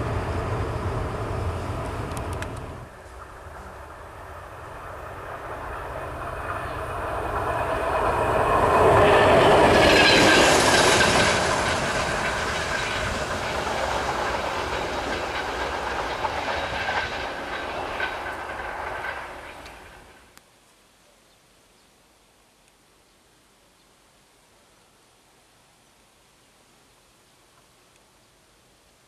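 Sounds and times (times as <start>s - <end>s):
diesel locomotive engine: 0.0s - 20.4s
train wheels on rails: 0.0s - 20.4s.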